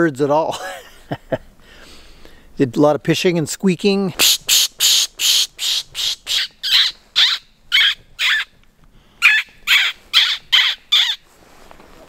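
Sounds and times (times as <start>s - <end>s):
person pishing through lips: 4.2s - 6.3s.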